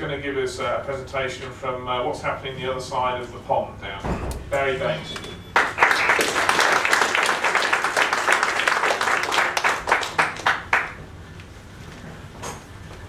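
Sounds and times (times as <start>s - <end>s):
audience applause: 5.6s - 11.1s.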